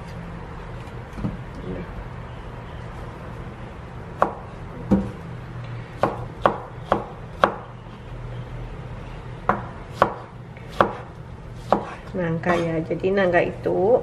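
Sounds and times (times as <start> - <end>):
knife chopping on cutting board: 6.0 - 7.7, 9.5 - 12.7.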